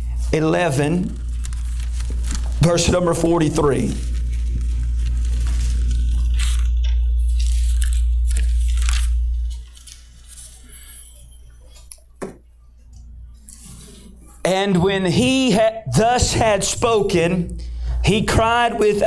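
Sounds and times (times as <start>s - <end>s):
loud low hum: 0.0s - 11.6s, 15.0s - 19.0s
thin pages rustling: 1.0s - 10.8s.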